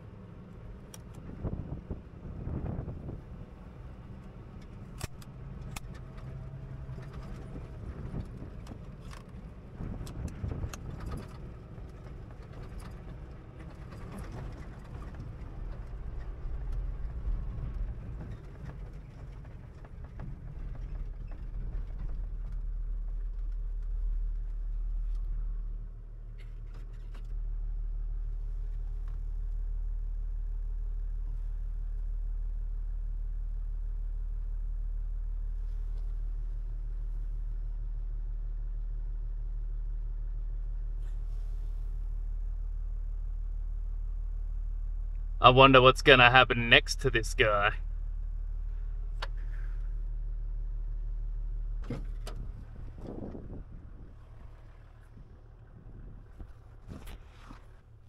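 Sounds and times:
vehicle engine running: 0.0s - 58.0s
vehicle body rattling and knocking: 17.0s - 24.3s.

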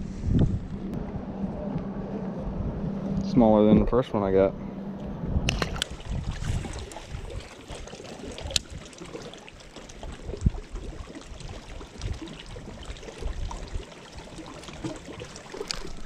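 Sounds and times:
water lapping against hull: 1.0s - 16.0s
fish splashing into water: 5.5s - 16.0s.

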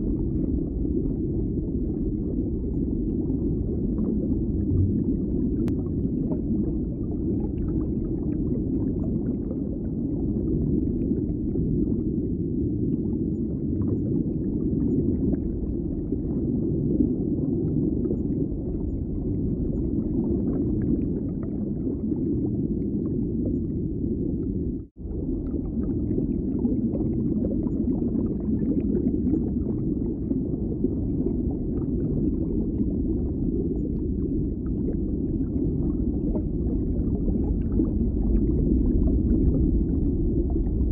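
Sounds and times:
low rumbling ambient noise: 29.6s - 40.9s.

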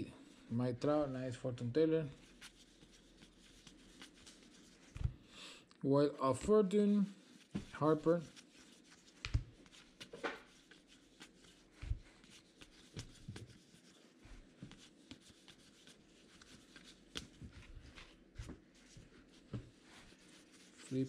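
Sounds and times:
cards rustling and flicking: 7.5s - 13.6s, 14.6s - 18.6s.

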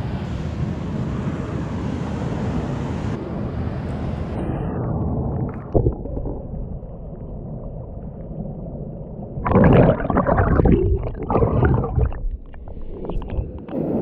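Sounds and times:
muffled underwater rumble: 4.4s - 14.0s
water bubbling and sloshing: 4.8s - 14.0s.

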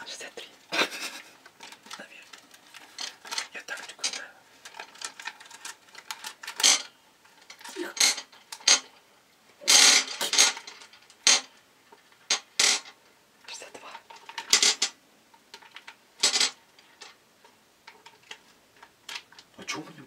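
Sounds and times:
candies clattering into metal pot: 1.5s - 9.0s, 9.6s - 11.6s, 15.6s - 17.2s.

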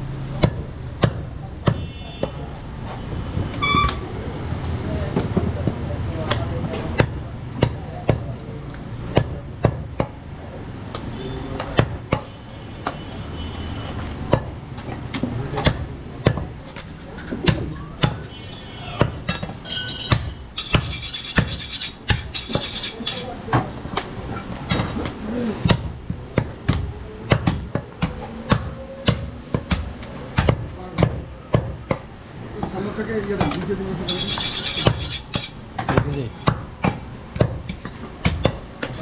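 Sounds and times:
cleaver chopping meat on wood: 0.4s - 2.4s, 5.2s - 10.2s, 10.8s - 13.0s, 14.3s - 18.3s, 24.7s - 32.1s, 35.8s - 39.0s.

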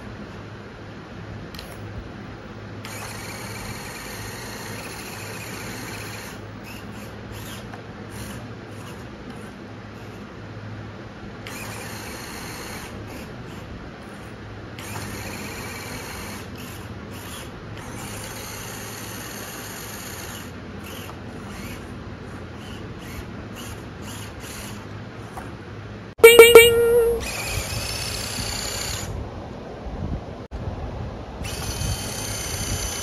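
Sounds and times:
small electric motors whining: 2.8s - 10.1s, 11.5s - 25.3s, 31.5s - 33.0s.

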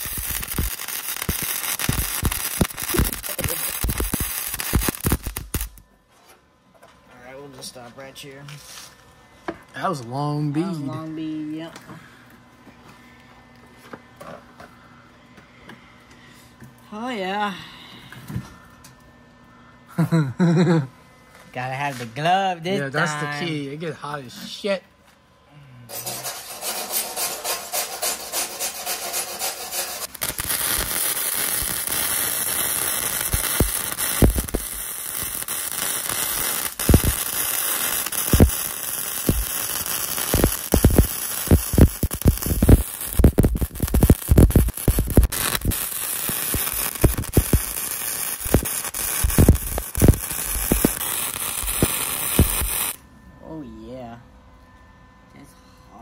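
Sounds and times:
welding arc crackling hiss: 0.0s - 5.8s, 25.9s - 53.0s
welding sharp pops: 0.0s - 5.8s, 26.5s - 53.0s.

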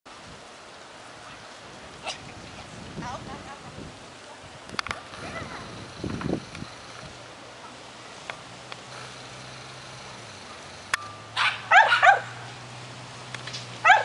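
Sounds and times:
dog yapping: 11.4s - 12.4s.

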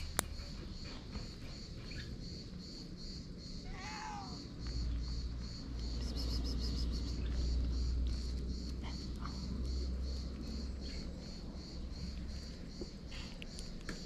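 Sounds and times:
insects chirping: 0.0s - 14.0s
cat meowing: 3.6s - 4.5s.

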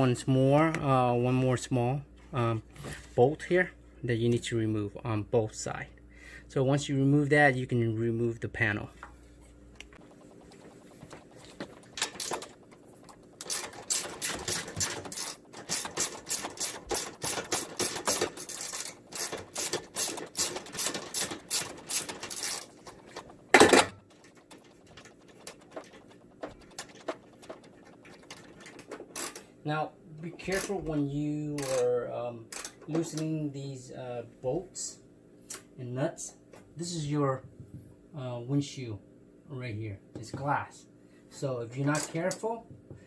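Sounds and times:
ratchet wrench clicking: 13.4s - 22.7s, 29.1s - 29.4s, 32.5s - 32.9s.

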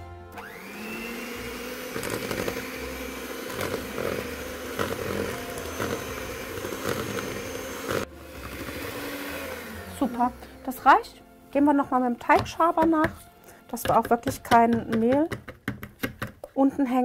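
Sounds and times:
electric hand mixer running: 0.0s - 11.1s.

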